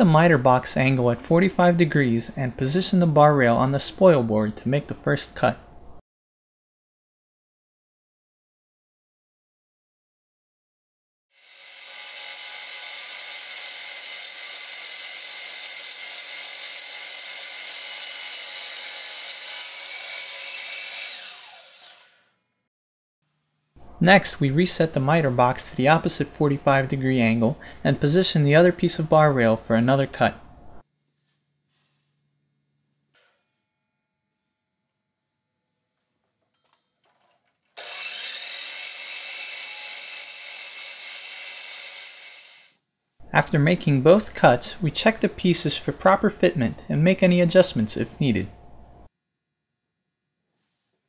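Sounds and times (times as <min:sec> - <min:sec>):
miter saw cutting wood: 0:11.3 - 0:22.2, 0:37.8 - 0:42.8
saw motor spinning down: 0:20.4 - 0:22.3, 0:37.8 - 0:42.8.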